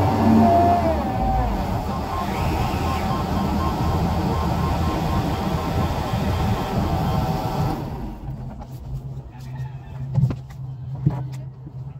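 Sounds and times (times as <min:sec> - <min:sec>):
crane engine running: 0:00.0 - 0:09.2.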